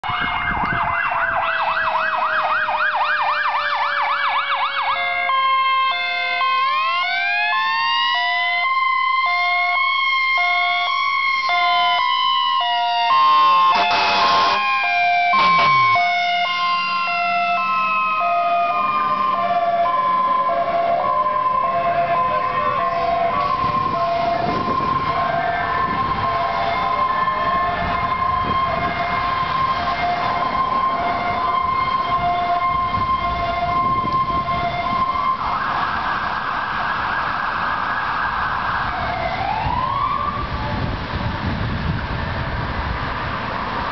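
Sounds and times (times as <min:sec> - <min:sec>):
electronic siren yelp and wail: 0:00.0 - 0:40.9
hi-lo siren tone: 0:09.2 - 0:35.6
loud horn blasts: 0:13.2 - 0:16.8.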